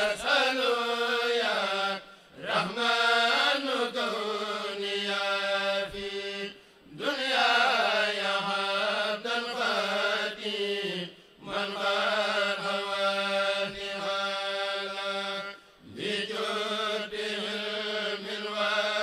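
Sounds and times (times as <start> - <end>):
group of men chanting: 0.0 - 19.0.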